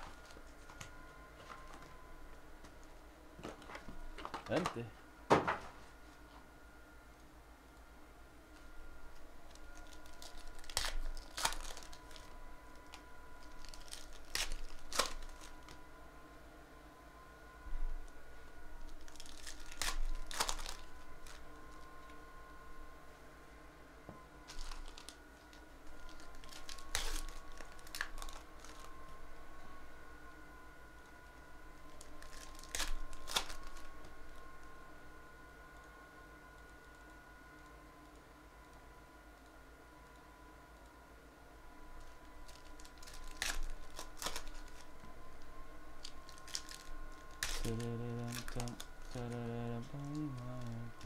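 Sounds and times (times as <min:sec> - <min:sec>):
cards clicking and crinkling: 0:03.4 - 0:04.9, 0:09.5 - 0:15.8, 0:18.8 - 0:22.2, 0:24.5 - 0:29.2, 0:31.8 - 0:34.2, 0:42.0 - 0:51.0.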